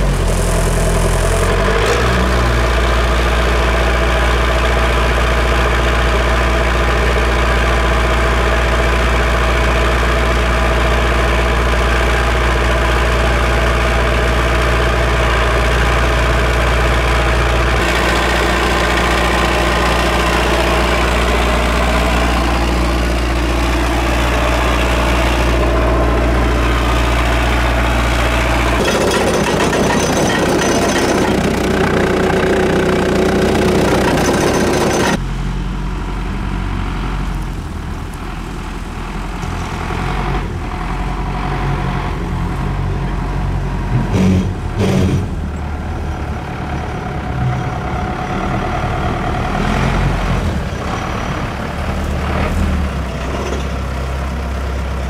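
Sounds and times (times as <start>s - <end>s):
tracked vehicle engine running: 0.0s - 55.0s.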